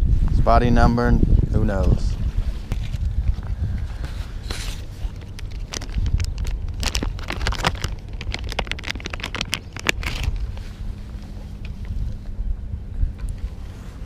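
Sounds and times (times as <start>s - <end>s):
plastic pouch crinkling: 4.5s - 10.6s.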